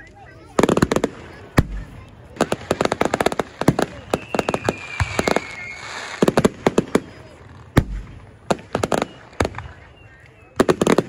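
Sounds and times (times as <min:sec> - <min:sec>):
fireworks crackling: 0:00.0 - 0:11.0
high firework whistle: 0:03.7 - 0:07.1, 0:08.6 - 0:10.8.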